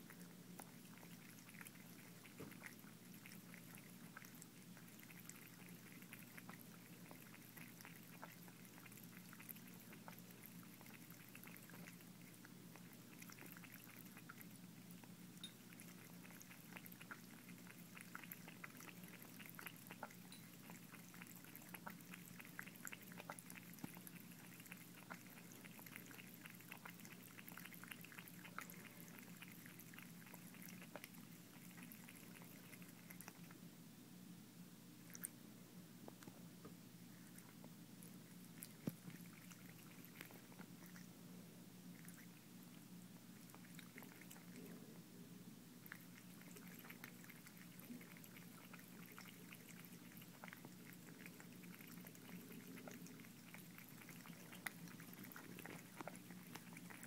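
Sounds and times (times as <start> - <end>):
cat lapping water: 0.0 - 33.6, 35.0 - 35.4, 37.0 - 41.2, 41.8 - 44.9, 45.8 - 57.0
running water trickle: 0.0 - 33.6, 45.8 - 57.0
low steady hum: 0.0 - 57.0.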